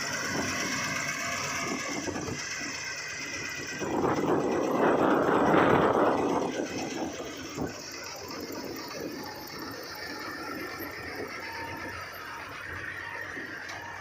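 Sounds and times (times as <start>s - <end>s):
combine harvester running: 0.0s - 14.0s.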